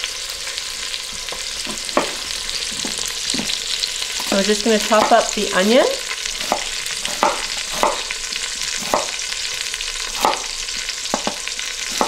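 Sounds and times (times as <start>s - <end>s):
chicken sizzling in hot oil: 0.0s - 12.0s
knife strikes on wooden board: 1.7s - 2.2s, 6.4s - 8.1s, 8.8s - 9.2s, 10.2s - 10.5s, 11.1s - 12.0s.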